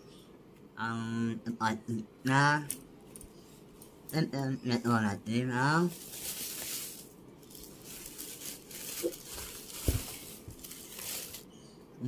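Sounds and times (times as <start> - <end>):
paper wrapping rustling: 5.8 - 11.5.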